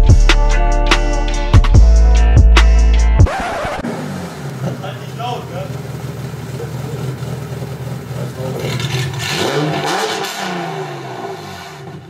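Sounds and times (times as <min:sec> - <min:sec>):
car engine idling and revving: 0:02.6 - 0:12.0.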